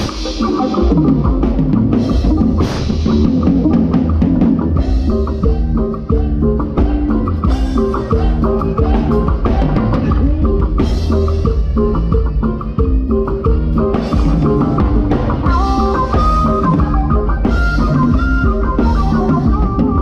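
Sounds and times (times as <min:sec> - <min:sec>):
live band music: 0:00.0 - 0:20.0.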